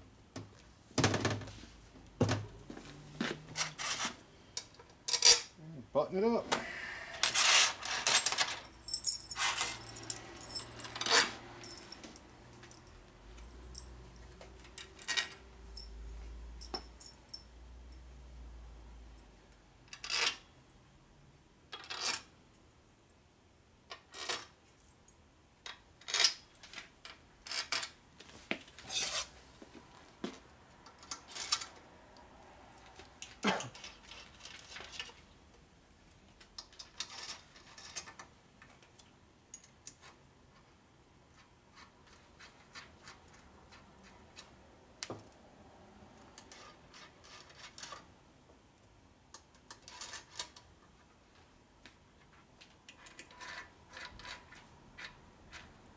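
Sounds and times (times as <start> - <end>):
screws and screwdriver clinking: 7.2 - 16.0.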